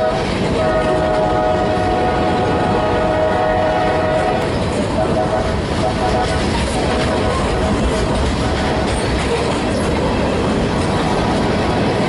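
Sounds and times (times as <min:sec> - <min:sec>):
locomotive air horn blast: 0:00.0 - 0:06.6.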